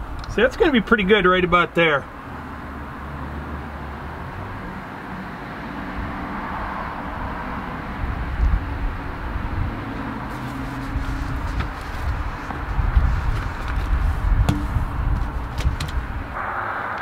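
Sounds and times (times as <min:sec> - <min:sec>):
low rumbles: 0:10.9 - 0:17.0.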